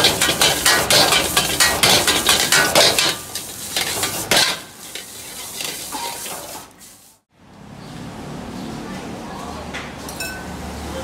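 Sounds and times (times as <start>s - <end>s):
metal ladle striking a wok: 0.0s - 4.8s
rice sizzling: 0.0s - 7.3s.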